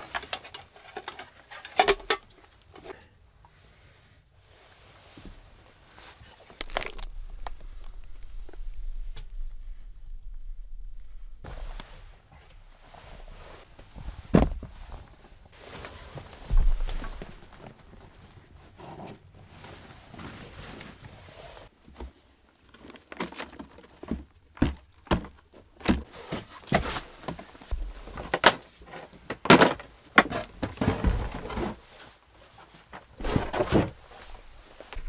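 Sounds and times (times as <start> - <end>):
backpack and clothing rustling: 4.8 - 24.2, 30.0 - 35.0
footsteps and thuds on wooden boards: 13.8 - 15.0, 16.3 - 17.6, 23.9 - 28.4.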